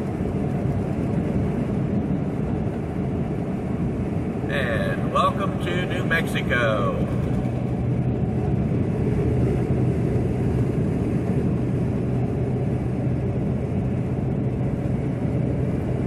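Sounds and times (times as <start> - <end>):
engine hum: 0.0 - 16.0
wind noise: 0.0 - 16.0.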